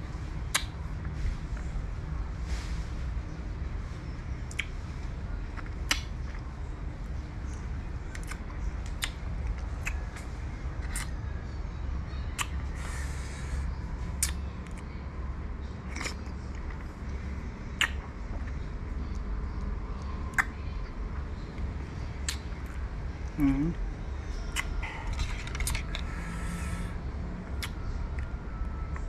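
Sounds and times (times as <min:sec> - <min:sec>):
low background rumble: 0:00.0 - 0:29.0
mouth clicks and lip smacks: 0:00.4 - 0:00.8, 0:04.5 - 0:04.8, 0:05.6 - 0:06.4, 0:07.5 - 0:11.2, 0:12.2 - 0:12.8, 0:14.2 - 0:14.9, 0:17.7 - 0:20.6, 0:22.2 - 0:22.8, 0:24.4 - 0:26.7, 0:27.5 - 0:28.3
person chewing food: 0:15.9 - 0:16.8.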